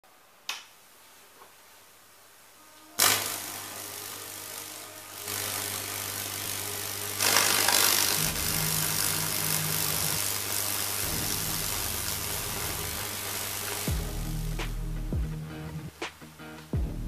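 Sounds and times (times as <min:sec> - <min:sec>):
electric arcs crackling and hissing: 0:02.7 - 0:17.0
transformer humming: 0:02.7 - 0:17.0
deeper buzz: 0:02.9 - 0:16.1.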